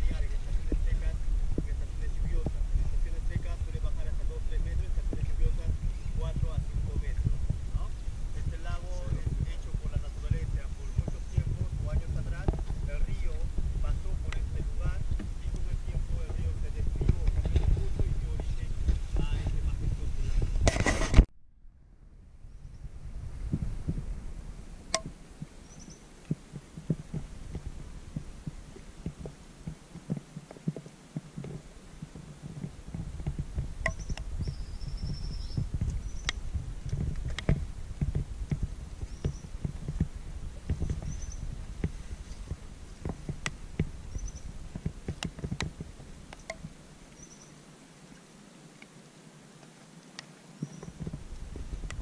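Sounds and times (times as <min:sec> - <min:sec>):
boat rumble and knocks: 0:00.0 - 0:21.3, 0:22.7 - 0:47.4, 0:50.6 - 0:52.0
bird chirping: 0:10.0 - 0:11.6, 0:25.0 - 0:26.1, 0:33.9 - 0:36.5, 0:39.0 - 0:39.6, 0:40.7 - 0:41.6, 0:44.1 - 0:44.5, 0:46.4 - 0:47.6, 0:50.6 - 0:51.0.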